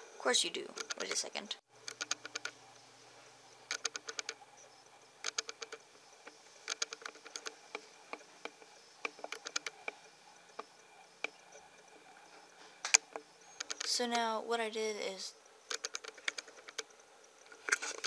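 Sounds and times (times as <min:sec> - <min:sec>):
light clicks: 0:01.8 - 0:02.6, 0:03.6 - 0:14.0.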